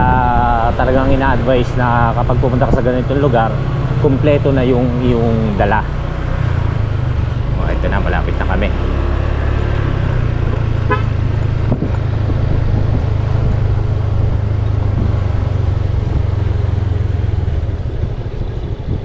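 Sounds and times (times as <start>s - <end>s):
motorcycle engine running: 0.0s - 19.0s
horn toot: 10.8s - 11.2s.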